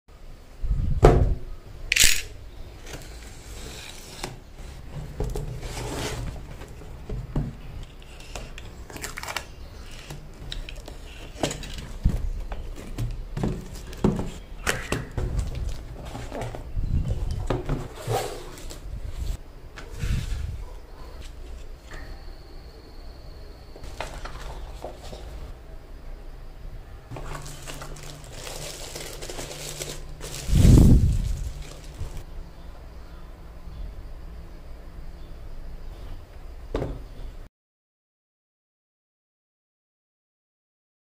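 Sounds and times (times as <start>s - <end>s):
cardboard scraping and rustling: 2.8s - 21.8s, 23.8s - 25.5s, 27.1s - 32.3s.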